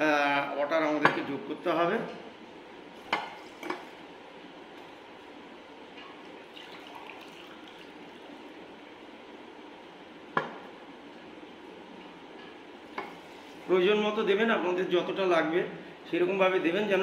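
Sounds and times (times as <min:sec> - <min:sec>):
water pouring: 0:06.4 - 0:08.7.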